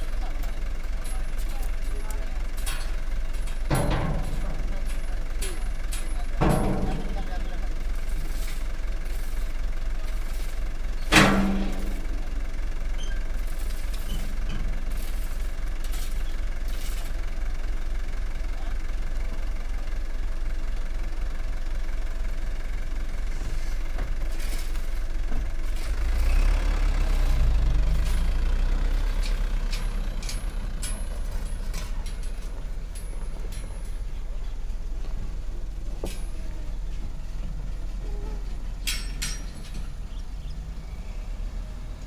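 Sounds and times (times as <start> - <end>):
diesel truck idling: 0.0 - 42.0
metal tailgate clank: 2.6 - 7.4, 11.0 - 12.3, 38.8 - 40.1
truck engine revving: 23.1 - 42.0.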